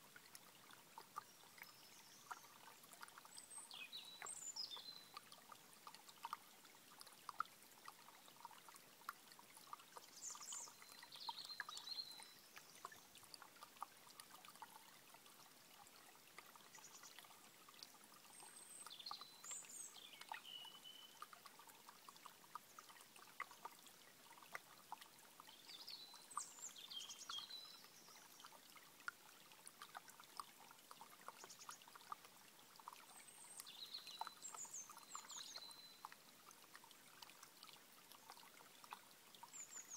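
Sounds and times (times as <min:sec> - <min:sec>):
stream trickling over stones: 0:00.0 - 0:39.9
songbird singing: 0:01.1 - 0:05.3, 0:10.0 - 0:13.1, 0:18.3 - 0:21.3, 0:25.4 - 0:28.6, 0:32.9 - 0:36.2, 0:39.4 - 0:39.9.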